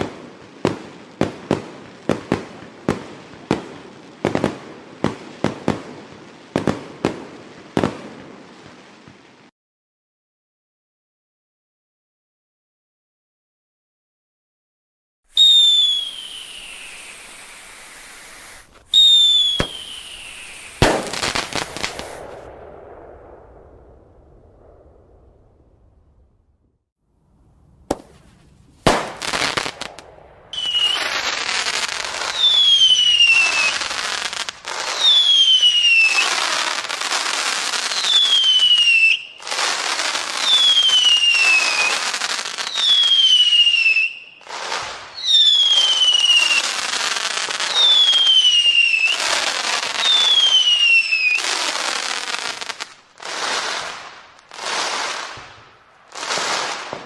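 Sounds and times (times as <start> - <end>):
crackling firework bursts: 0.0 - 9.5, 15.3 - 26.7, 27.3 - 57.0
falling whistle: 15.3 - 22.2, 30.5 - 34.0, 34.9 - 36.4, 40.4 - 42.0, 47.7 - 49.3, 50.0 - 51.4
firework bang: 15.4 - 26.8, 27.8 - 36.8, 53.6 - 57.0.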